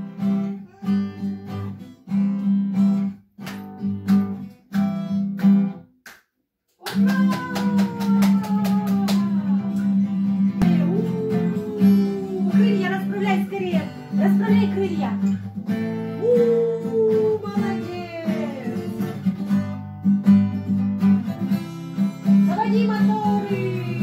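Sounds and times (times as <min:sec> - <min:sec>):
acoustic guitar strumming chords: 0:09.8 - 0:16.2.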